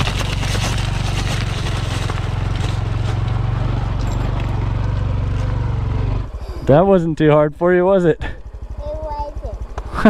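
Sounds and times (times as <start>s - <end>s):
motorcycle engine running: 0.0s - 10.0s.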